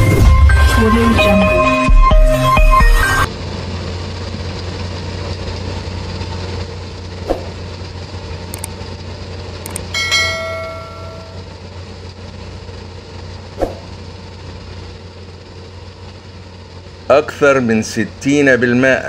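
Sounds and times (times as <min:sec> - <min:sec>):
low rumbling hum: 0:00.0 - 0:19.0
short click: 0:09.7 - 0:09.9
bell-like chime: 0:09.9 - 0:11.6.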